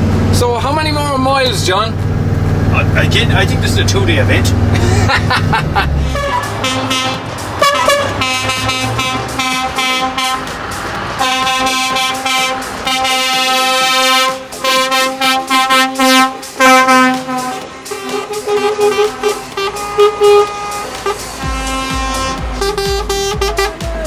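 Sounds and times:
lorries driving past: 0.0 - 24.0
truck air horns: 5.9 - 24.0.

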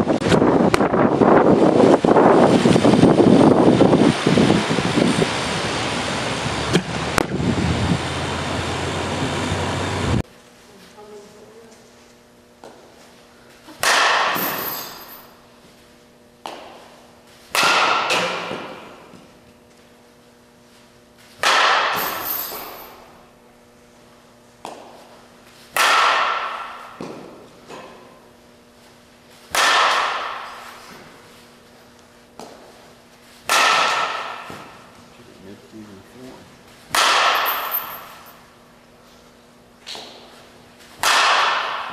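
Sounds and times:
bat hitting ball with ringing ping: 13.8 - 15.1, 17.5 - 18.9, 21.4 - 22.8, 25.8 - 28.1, 29.5 - 30.6, 33.5 - 34.8, 36.9 - 38.2, 41.0 - 41.9.

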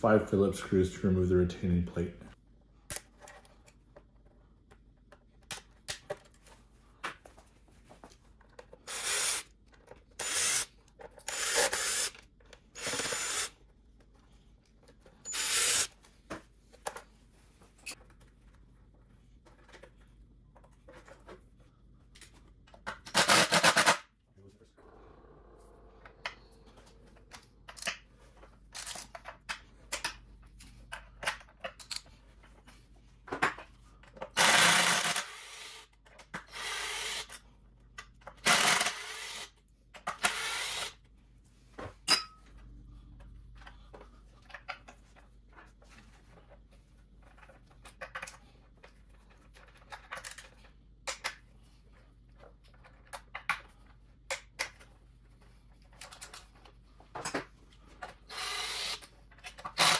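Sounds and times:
screws and tools clicking: 8.7 - 12.2, 12.8 - 13.5, 15.2 - 15.9, 34.3 - 37.4, 38.4 - 41.0, 58.3 - 59.9
cordless drill bursts: 10.2 - 10.7, 11.3 - 12.1, 12.8 - 13.5, 15.3 - 15.9, 34.4 - 35.8, 36.5 - 37.3, 38.4 - 39.5, 40.2 - 41.0, 58.3 - 59.0.

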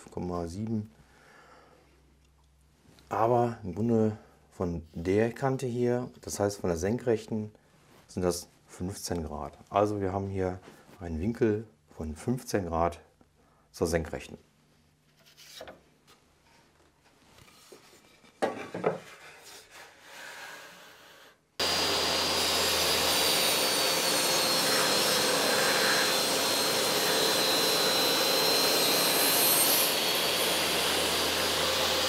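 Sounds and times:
table saw cutting wood: 21.6 - 32.0.

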